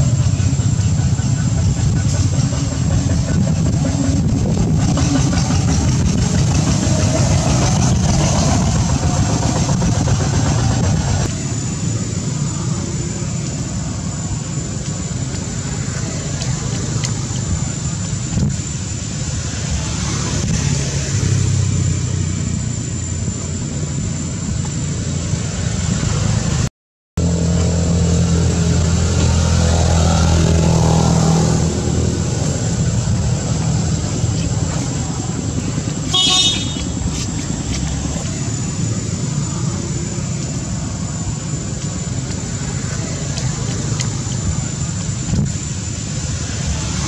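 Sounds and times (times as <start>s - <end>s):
motor traffic: 0.0s - 47.0s
car horn toot: 36.1s - 37.0s.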